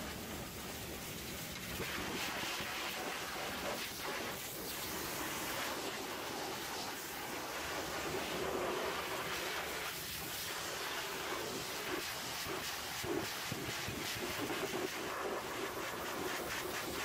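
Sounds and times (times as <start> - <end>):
pressure washer spraying metal: 0.0 - 17.0.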